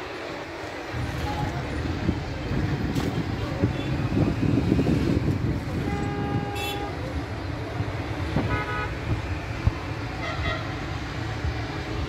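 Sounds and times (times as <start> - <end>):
road traffic rumble: 0.0 - 12.0
vehicle horn toots: 5.8 - 7.0, 8.4 - 9.0.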